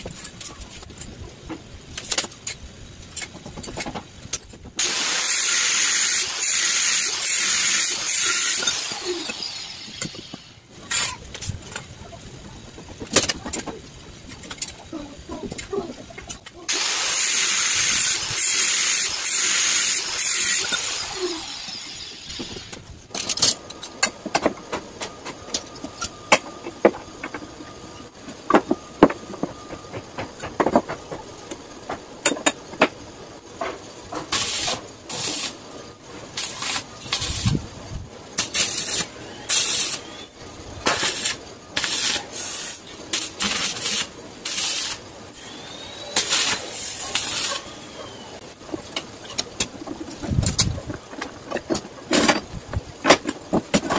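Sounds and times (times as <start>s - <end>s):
arc welding bursts: 4.8s - 11.1s, 16.7s - 22.8s, 34.3s - 35.6s, 36.4s - 37.6s, 38.4s - 47.9s
angle grinder cutting steel: 4.8s - 11.2s, 16.7s - 22.8s.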